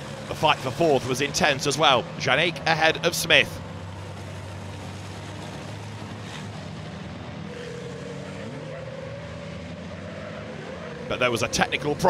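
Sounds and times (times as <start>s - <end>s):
truck diesel engines running: 0.0s - 12.0s.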